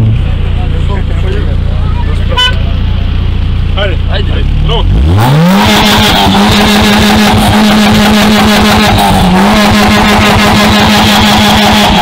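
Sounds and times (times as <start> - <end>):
car engine revving hard: 4.4 - 12.0.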